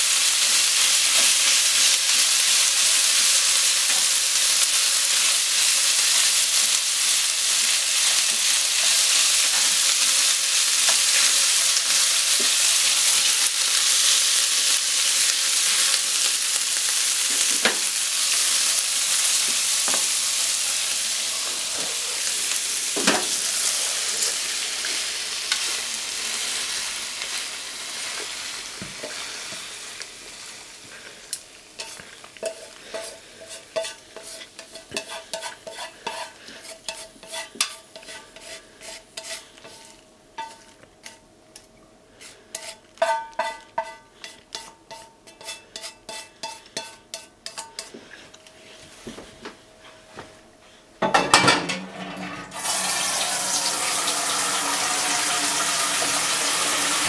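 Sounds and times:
food sizzling in frying pan: 0:00.0 - 0:41.3, 0:42.1 - 0:48.1, 0:51.0 - 0:57.0
clinks and scrapes on metal pan: 0:31.8 - 0:48.4
water running from a tap: 0:52.0 - 0:57.0.

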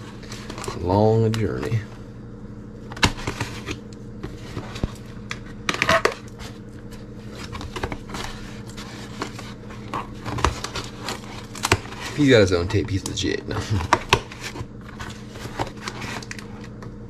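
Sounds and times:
packaging crinkling and tearing: 0:02.9 - 0:16.8.

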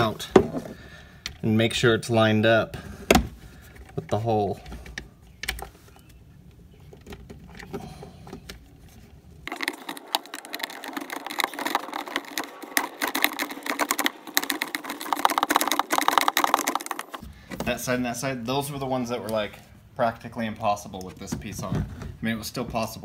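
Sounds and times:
hand ratchet clicking: 0:09.5 - 0:17.2.

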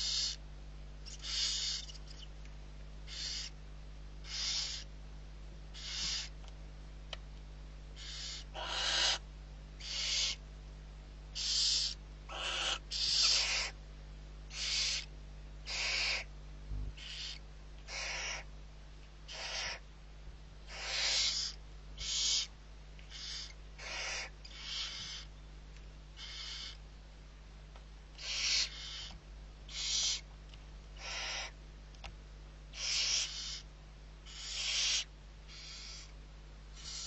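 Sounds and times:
owls hissing: 0:00.0 - 0:00.4, 0:01.1 - 0:02.3, 0:03.1 - 0:03.6, 0:04.2 - 0:04.9, 0:05.7 - 0:06.4, 0:08.0 - 0:09.2, 0:09.8 - 0:10.4, 0:11.3 - 0:13.8, 0:14.5 - 0:16.3, 0:17.0 - 0:18.5, 0:19.3 - 0:19.8, 0:20.7 - 0:22.5, 0:23.1 - 0:25.3, 0:26.2 - 0:26.8, 0:28.2 - 0:30.3, 0:31.0 - 0:31.6, 0:32.7 - 0:36.1, 0:36.7 - 0:37.0
low electrical hum: 0:00.0 - 0:37.0.

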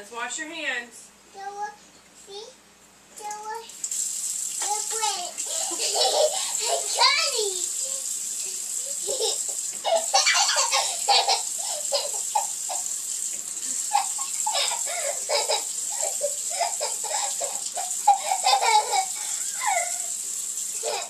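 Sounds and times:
toddler giggling: 0:05.4 - 0:12.9, 0:13.6 - 0:20.2, 0:20.8 - 0:21.0.

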